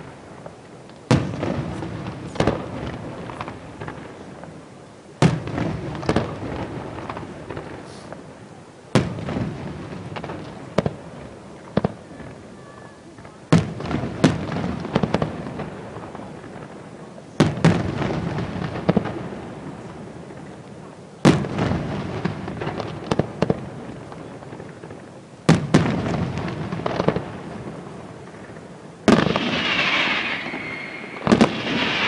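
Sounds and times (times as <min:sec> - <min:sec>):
firework bangs with echo: 0:00.0 - 0:04.6, 0:05.2 - 0:12.4, 0:13.2 - 0:20.6, 0:21.2 - 0:32.0.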